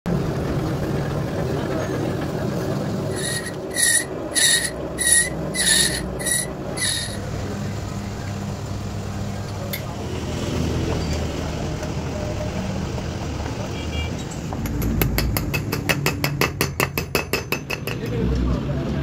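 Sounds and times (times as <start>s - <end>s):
cutting tool screeching on metal: 3.1s - 7.3s
lathe humming: 3.1s - 7.5s.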